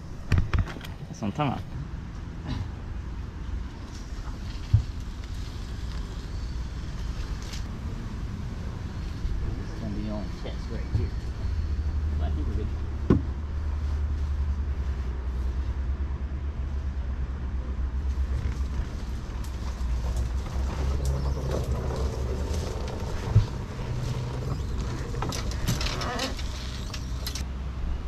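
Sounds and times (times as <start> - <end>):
steady low rumble: 0.9 - 28.0
thump: 13.1 - 13.3
branches scraping against boat: 18.0 - 27.4.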